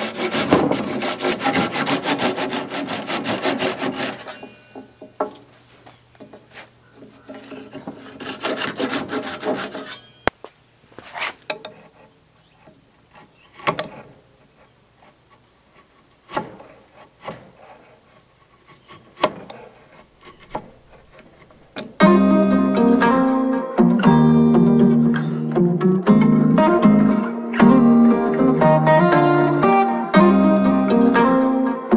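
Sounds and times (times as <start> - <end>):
hand saw cutting wood: 0.0 - 5.4, 6.5 - 10.2, 11.0 - 22.0
chisel cracking wood: 11.5 - 22.0.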